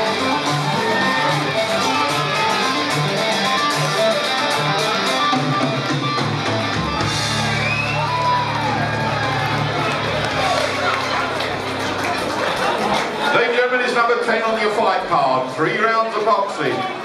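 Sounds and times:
guitar rock music: 0:00.0 - 0:13.2.

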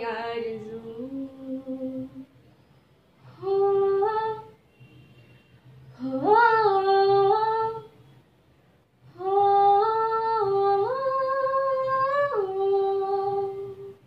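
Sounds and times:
girl singing unaccompanied: 0:09.2 - 0:14.0.

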